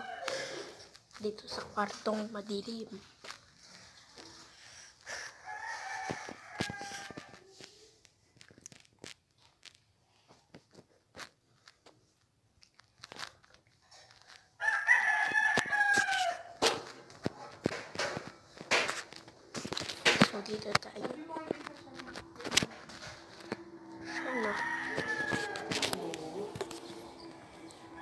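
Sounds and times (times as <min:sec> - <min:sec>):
rooster crowing: 0:00.0 - 0:00.8, 0:05.2 - 0:07.4, 0:14.6 - 0:16.6, 0:23.4 - 0:28.0
rustling: 0:00.3 - 0:27.4.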